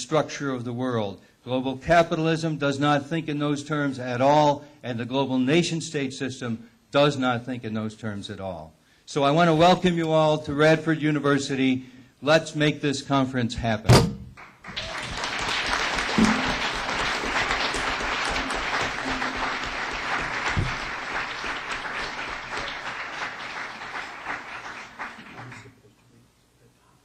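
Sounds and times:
audience applauding: 14.4s - 25.8s.

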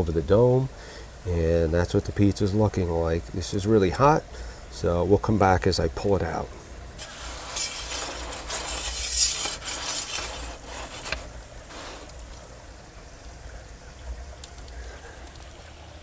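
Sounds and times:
metal pizza peel scraping stone: 7.0s - 12.2s
wood fire crackling and popping: 7.0s - 12.7s, 14.4s - 15.6s.

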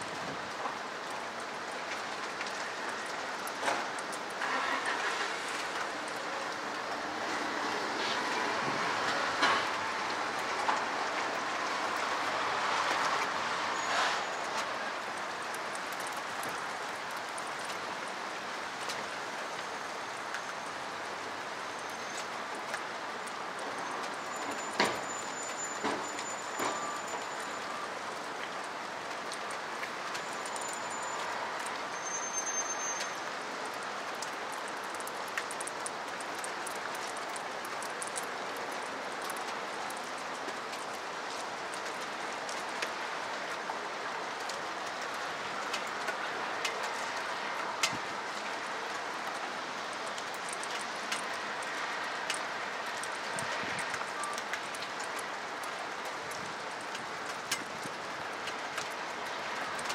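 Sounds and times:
steady rain: 0.0s - 59.9s
water drips: 21.7s - 59.9s.

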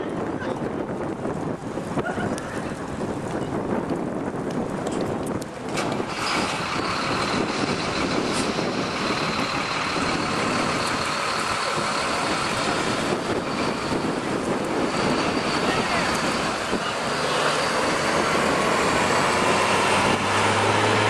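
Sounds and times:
cars and trucks driving past: 5.6s - 21.0s.

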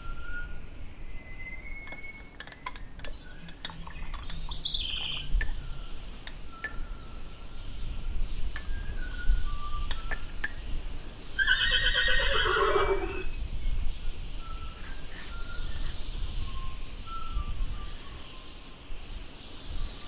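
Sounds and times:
horse whinnying: 11.4s - 13.3s.

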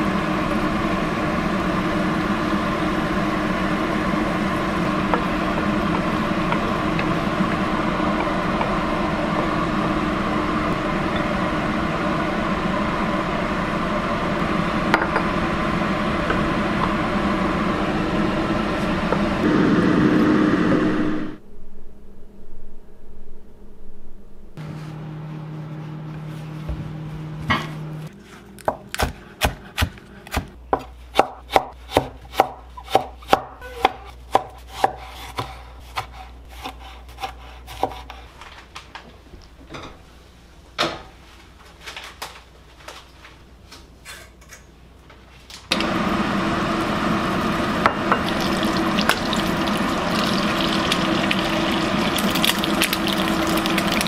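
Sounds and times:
steady hum: 0.0s - 28.7s, 45.7s - 54.0s
egg sizzling in hot oil: 47.4s - 54.0s.

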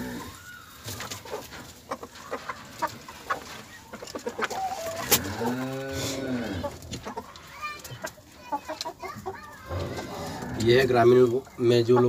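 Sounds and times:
hen clucking: 0.0s - 12.0s
cow mooing: 5.2s - 6.7s.

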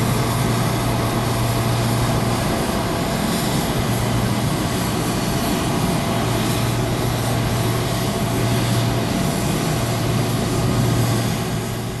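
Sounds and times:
aircraft engine droning hum: 0.0s - 12.0s
aircraft engine hiss: 0.0s - 12.0s.

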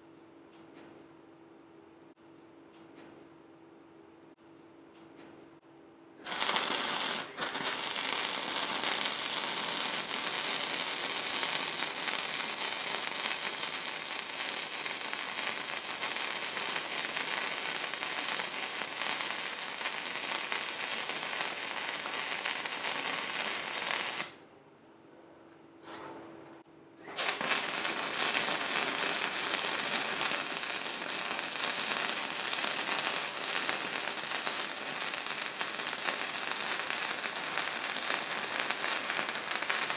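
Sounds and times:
welding arc crackling: 6.2s - 24.4s, 27.1s - 39.9s
faint welder hum: 6.2s - 24.5s, 26.9s - 39.9s.

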